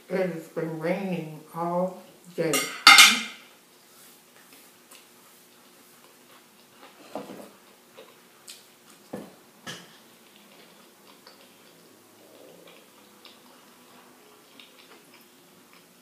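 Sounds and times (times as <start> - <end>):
chewing and mouth noises: 4.3 - 9.1, 9.8 - 16.0.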